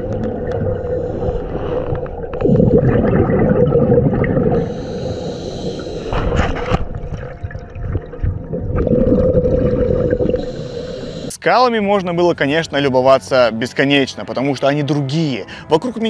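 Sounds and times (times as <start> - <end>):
underwater exhale bubbling: 0.0 - 11.3
regulator hiss: 10.3 - 11.4.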